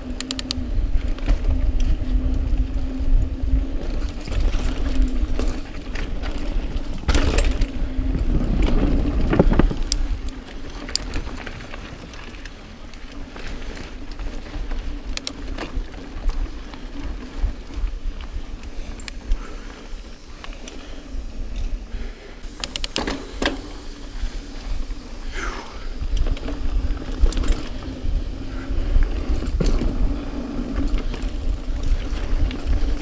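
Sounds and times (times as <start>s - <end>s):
wind on microphone: 0.0s - 11.4s
bike rattling and clicking: 0.0s - 33.0s
tyres rolling on trail: 0.0s - 33.0s.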